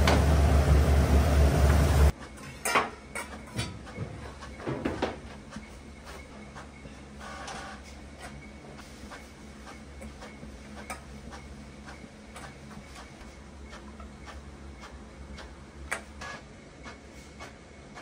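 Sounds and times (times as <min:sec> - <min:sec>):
low hum: 0:00.0 - 0:02.1.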